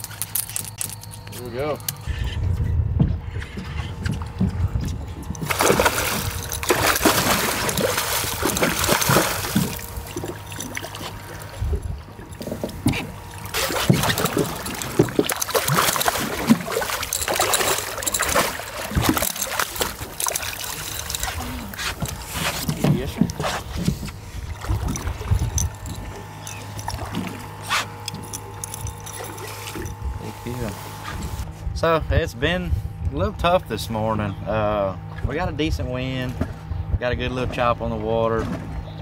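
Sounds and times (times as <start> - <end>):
fish splashing in water: 5.4 - 11.6, 12.4 - 22.9.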